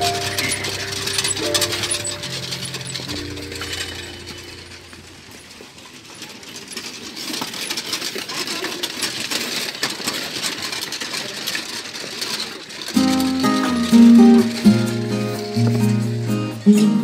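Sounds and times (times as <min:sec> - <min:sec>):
metal prayer wheels clicking: 0:00.0 - 0:17.0.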